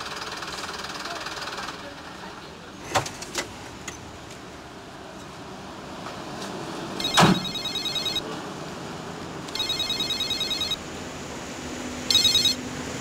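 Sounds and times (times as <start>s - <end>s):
phone ringing with electronic trill: 7.0s - 8.2s, 9.6s - 10.8s, 12.1s - 12.6s.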